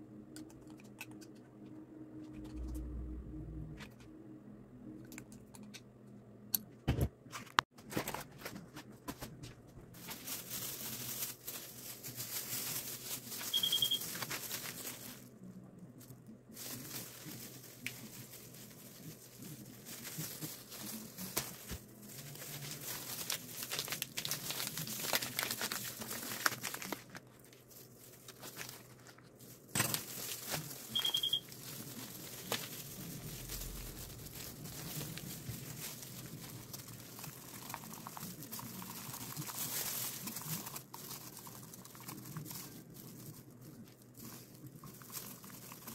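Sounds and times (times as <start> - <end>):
packaging rustling and crinkling: 7.8 - 45.9
short high beeps: 13.5 - 14.0, 30.9 - 31.4.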